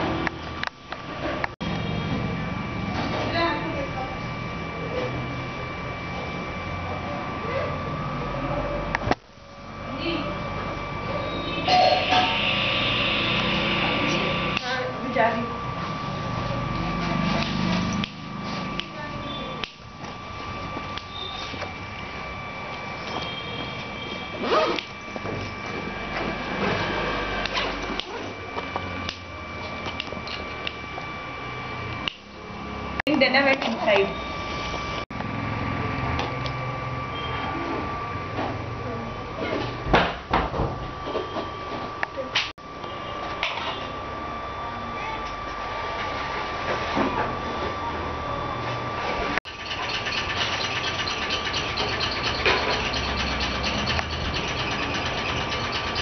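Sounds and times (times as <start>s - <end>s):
machine whining: 0.0s - 39.8s, 40.8s - 56.0s
machine rattle: 49.5s - 56.0s.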